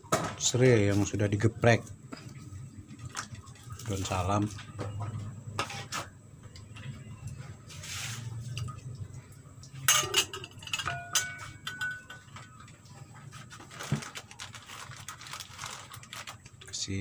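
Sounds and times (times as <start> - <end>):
low steady hum: 0.0 - 17.0
ladle clinking against a wok: 9.8 - 12.6.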